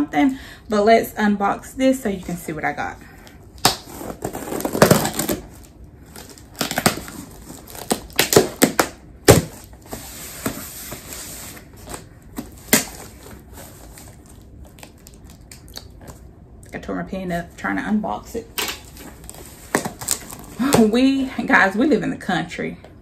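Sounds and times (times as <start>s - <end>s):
package tape tearing and crinkling: 3.6s - 16.2s, 18.8s - 20.6s.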